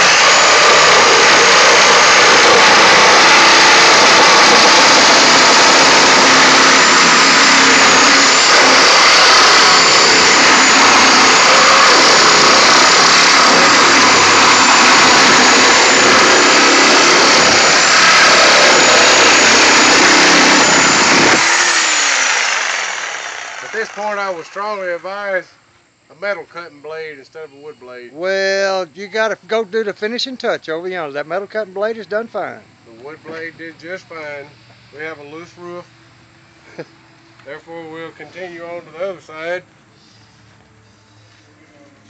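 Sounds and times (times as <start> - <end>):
reciprocating saw cutting metal: 0.0 - 25.0
saw motor winding down: 0.0 - 25.3.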